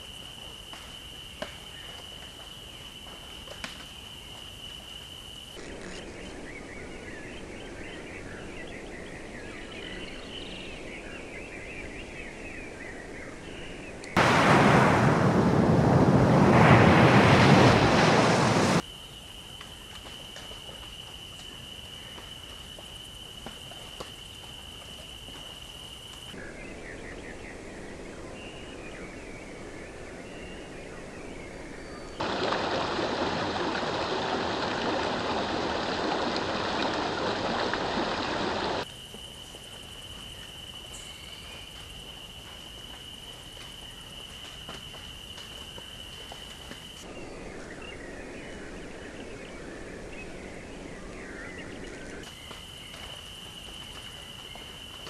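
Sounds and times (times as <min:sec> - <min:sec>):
rushing water: 0:14.2 - 0:18.8, 0:32.2 - 0:38.8.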